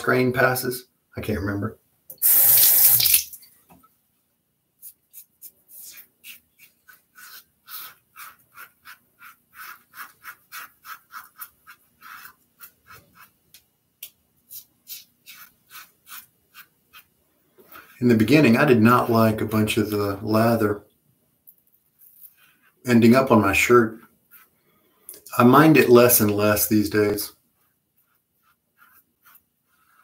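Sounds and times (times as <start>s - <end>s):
razor scraping stubble: 4.8s - 13.4s, 14.5s - 17.1s.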